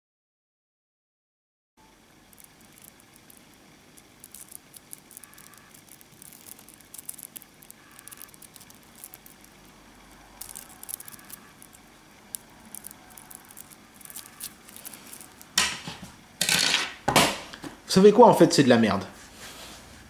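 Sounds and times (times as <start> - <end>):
magnetic metal balls clicking: 2.3 - 15.7.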